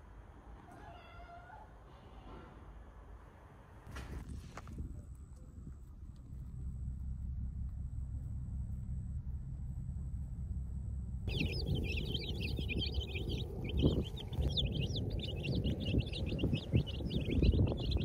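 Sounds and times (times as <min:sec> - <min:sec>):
low rumble: 0:04.2 - 0:18.0
baby chicks peeping: 0:11.3 - 0:18.0.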